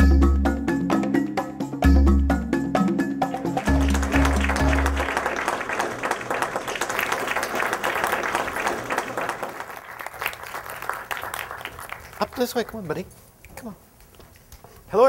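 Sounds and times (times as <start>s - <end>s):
title music: 1.9s - 6.2s
audience applauding: 3.3s - 13.0s.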